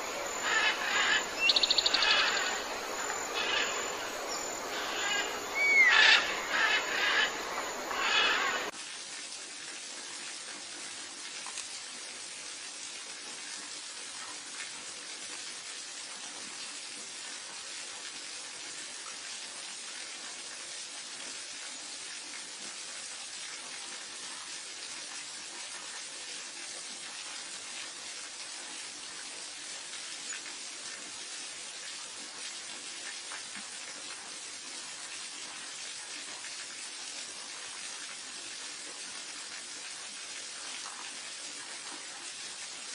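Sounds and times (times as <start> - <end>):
birds chirping: 0.0 - 8.7
steady hiss: 0.0 - 8.7.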